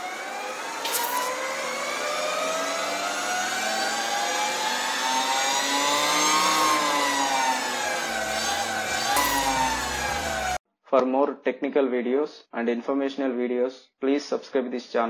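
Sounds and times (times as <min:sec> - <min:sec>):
electric motorcycle motor whining: 0:00.0 - 0:10.6.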